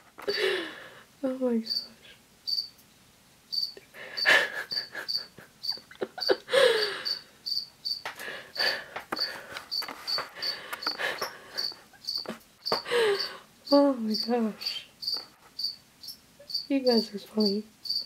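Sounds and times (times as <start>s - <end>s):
breathy noises: 0.2s - 1.1s, 6.5s - 7.3s, 8.2s - 13.6s
cricket chirping: 1.7s - 2.8s, 3.5s - 18.0s
rustling near microphone: 8.1s - 12.9s.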